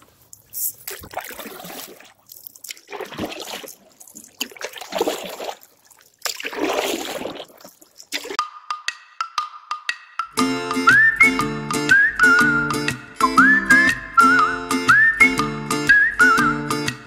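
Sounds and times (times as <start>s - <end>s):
paddle strokes splashing water: 0.7s - 8.4s
music: 8.4s - 17.0s.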